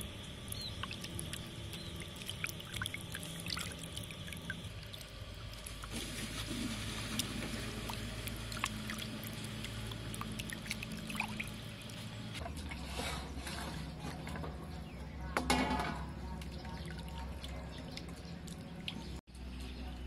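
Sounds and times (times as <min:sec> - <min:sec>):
water sloshing in a steel bowl: 0:00.0 - 0:19.2.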